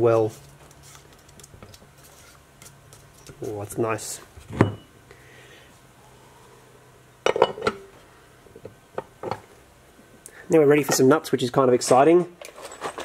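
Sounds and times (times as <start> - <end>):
metal parts clinking: 12.4 - 13.0.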